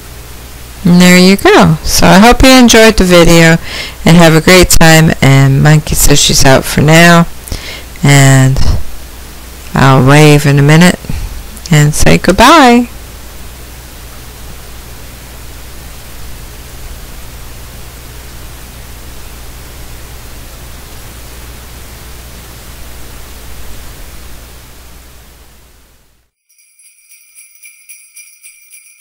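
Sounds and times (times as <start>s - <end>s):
sleigh bells jingling: 26.4s - 29.0s.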